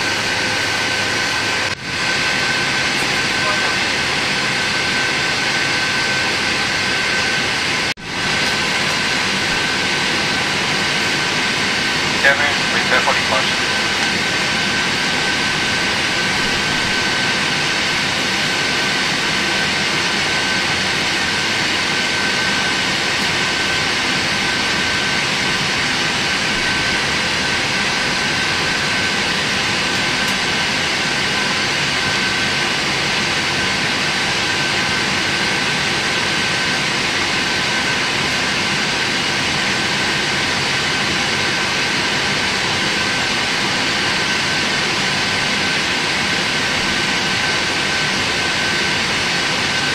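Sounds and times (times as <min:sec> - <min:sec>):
aircraft cabin hiss and whine: 0:00.0 - 0:49.9.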